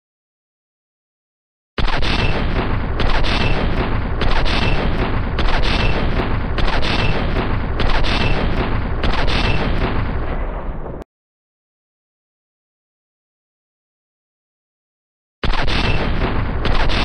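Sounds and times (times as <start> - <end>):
heavy machine gun automatic fire: 1.8 - 11.0, 15.4 - 17.0.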